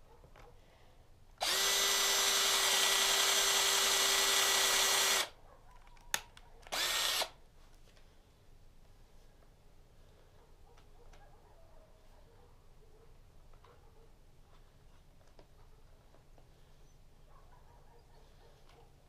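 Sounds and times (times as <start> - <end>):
power tool motor running: 1.4 - 5.3, 6.7 - 7.3.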